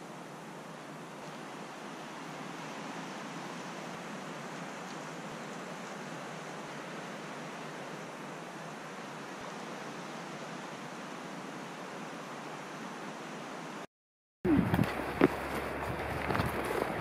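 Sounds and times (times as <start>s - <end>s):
steady hiss: 0.0s - 13.9s.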